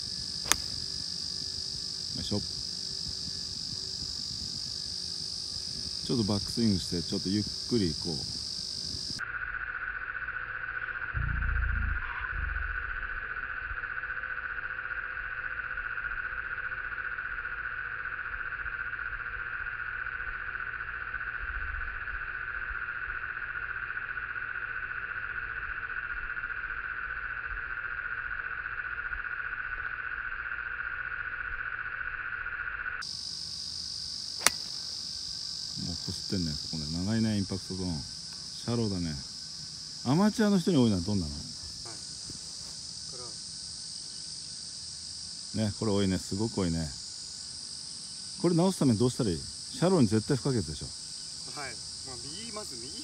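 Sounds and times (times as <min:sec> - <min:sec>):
low-pitched insect chorus: 0:00.0 - 0:53.0
low rumble: 0:11.2 - 0:13.0.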